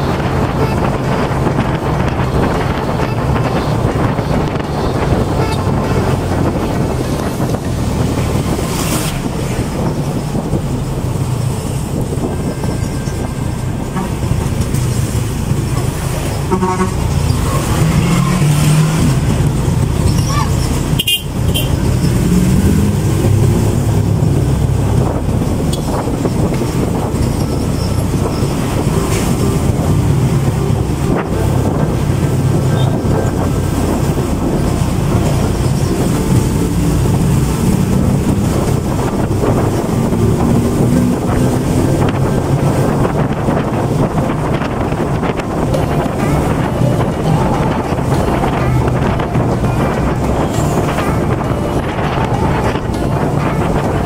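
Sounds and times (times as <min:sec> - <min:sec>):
wind buffeting microphone: 0:00.0 - 0:54.0
motorcycle engine revving: 0:13.9 - 0:53.2.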